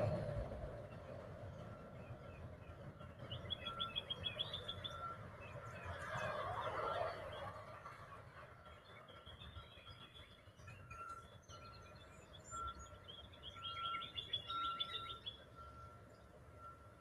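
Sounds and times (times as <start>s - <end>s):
small bird chirping: 11.6s - 15.5s.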